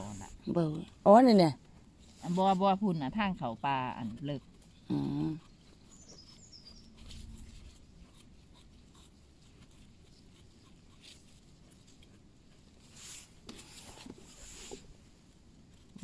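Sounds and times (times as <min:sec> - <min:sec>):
high bird chirps: 0:05.8 - 0:07.0
hands rustling on forest floor: 0:09.8 - 0:16.0.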